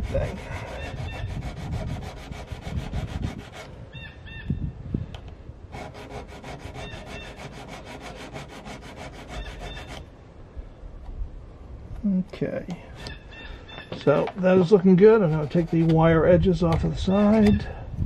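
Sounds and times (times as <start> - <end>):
hone rasping on steel: 0.0 - 3.8, 5.7 - 10.1, 14.6 - 17.7.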